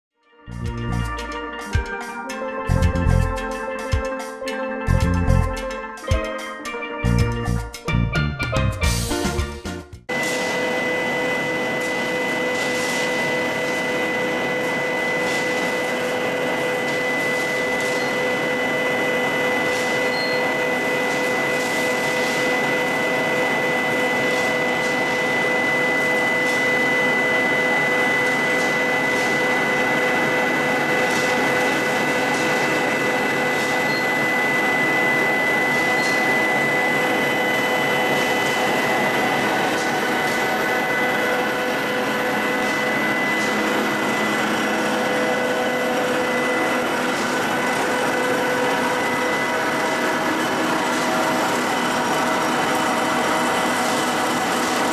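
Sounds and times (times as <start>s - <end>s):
electric motors whining: 10.1s - 54.9s
constant high tone: 10.8s - 51.6s.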